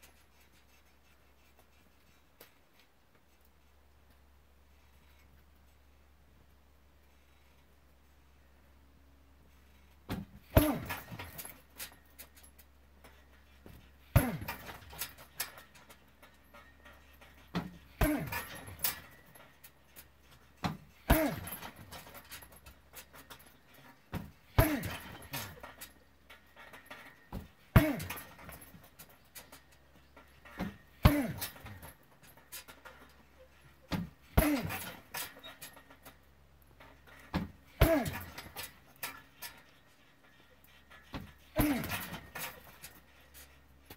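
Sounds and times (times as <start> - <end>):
chain rattling: 9.7 - 43.9
kicks thudding into heavy bag: 10.1 - 11.5, 20.6 - 22.0, 24.1 - 25.5, 30.6 - 31.9, 37.3 - 38.5, 41.2 - 42.5
person grunting: 41.6 - 42.0.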